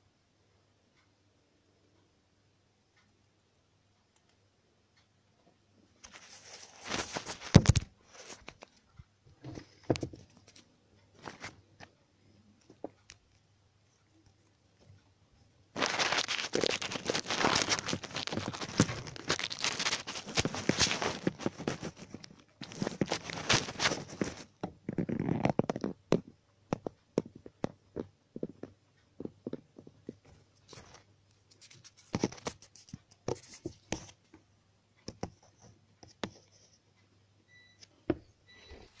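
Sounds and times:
crinkling and rustling: 6.0 - 12.0, 15.7 - 34.4, 38.6 - 39.0.

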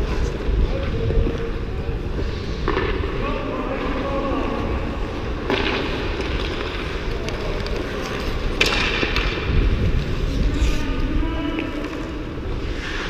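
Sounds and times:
wind rumble on microphone: 0.0 - 2.6, 8.4 - 12.7
skate blades scraping ice: 0.0 - 4.7, 5.5 - 13.0.

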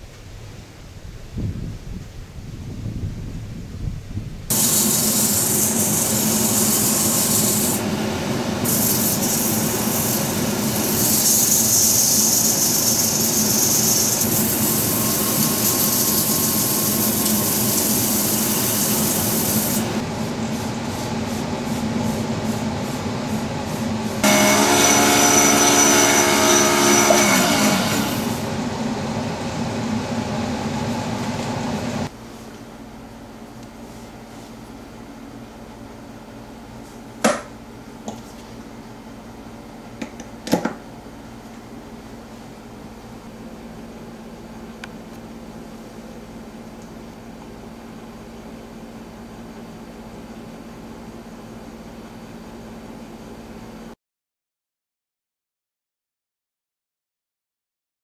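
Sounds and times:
abrasive sanding spinning wood: 4.5 - 7.9, 8.6 - 20.0, 21.1 - 28.3
wood lathe running: 4.5 - 7.9, 8.7 - 19.8, 24.2 - 28.3.

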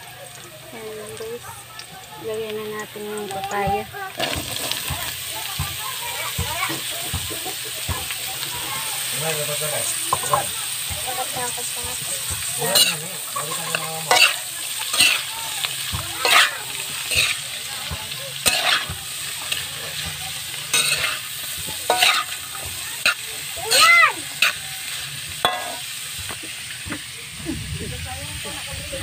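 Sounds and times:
food sizzling in oil: 0.0 - 29.0
spatula scraping metal pan: 11.2 - 15.3, 15.9 - 25.8.

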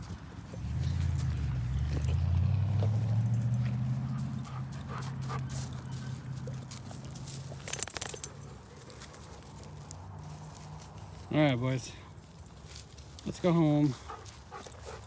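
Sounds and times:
dogs sniffing: 4.0 - 9.7, 13.7 - 15.0
jingling clicks: 6.8 - 8.7.

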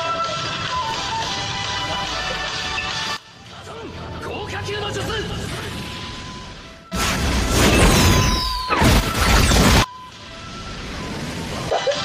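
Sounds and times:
background music: 0.0 - 7.0
rushing fire blast: 6.9 - 9.9.

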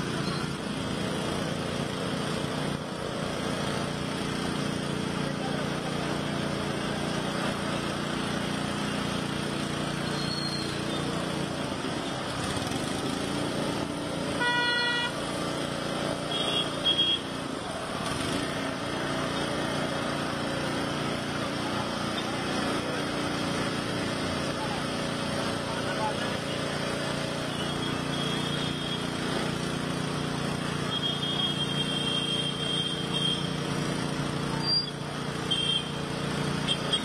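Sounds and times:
engine noise: 0.0 - 37.0
water washing from traffic: 0.0 - 37.0
short high horn beeps: 10.0 - 10.8, 14.4 - 15.2, 16.3 - 17.3, 27.5 - 29.2, 30.8 - 33.6, 34.6 - 36.0
vehicle horn honking: 14.4 - 15.2, 16.2 - 17.3, 27.5 - 29.0, 30.8 - 33.5, 35.4 - 36.0, 36.6 - 37.0.

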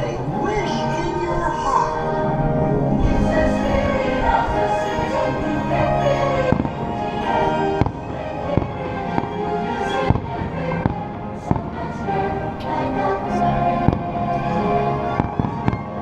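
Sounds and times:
music soundtrack: 0.0 - 16.0
fireworks booming: 6.2 - 12.8, 13.7 - 16.0.

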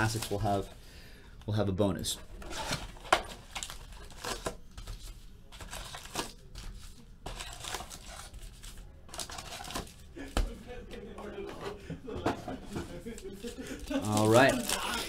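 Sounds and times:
card packs crinkling and rustling: 0.0 - 0.7, 2.3 - 10.4, 13.0 - 15.0.

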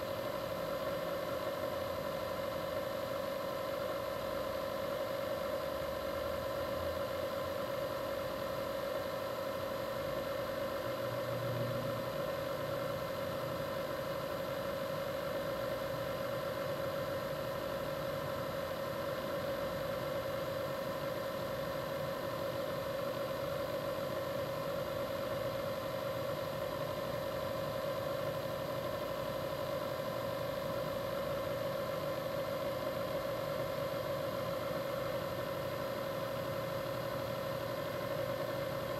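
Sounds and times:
steady mechanical hum: 0.0 - 38.9.

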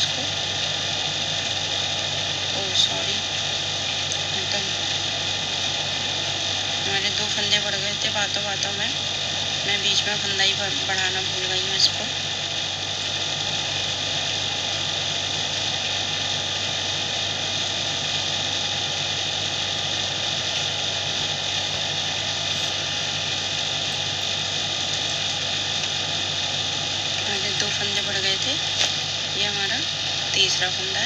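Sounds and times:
low steady hum: 0.0 - 31.0
steady hiss: 0.0 - 31.0.

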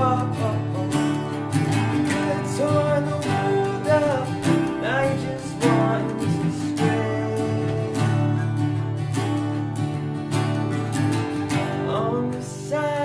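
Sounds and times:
person singing: 0.0 - 8.8, 11.5 - 13.0
acoustic guitars strumming: 0.0 - 13.0.

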